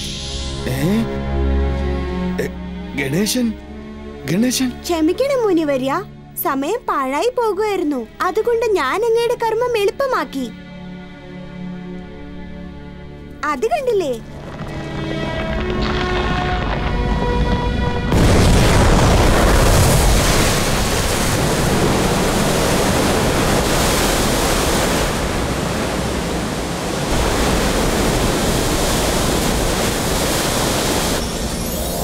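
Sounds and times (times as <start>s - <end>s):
music: 0.0s - 18.9s
torrent of water rushing: 18.1s - 32.0s.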